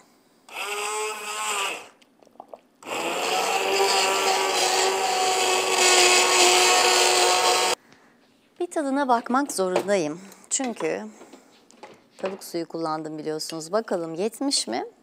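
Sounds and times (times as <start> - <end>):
immersion blender motor hum: 0.5 - 2.0, 2.8 - 7.8.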